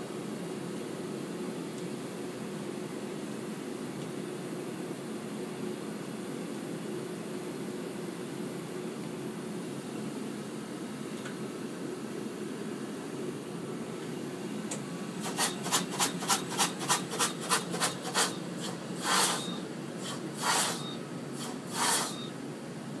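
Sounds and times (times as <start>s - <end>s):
machinery low hum: 9.6s - 23.0s
rubbing sounds: 15.2s - 20.8s, 21.4s - 22.1s.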